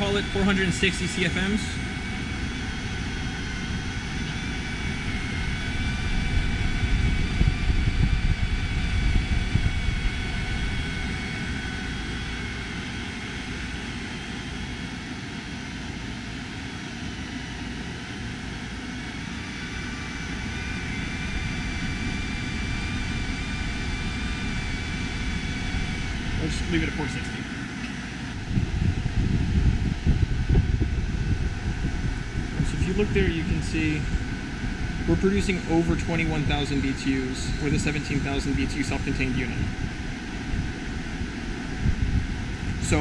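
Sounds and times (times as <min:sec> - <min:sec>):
air conditioner blower rushing: 0:00.0 - 0:43.0
low rumble: 0:28.2 - 0:43.0.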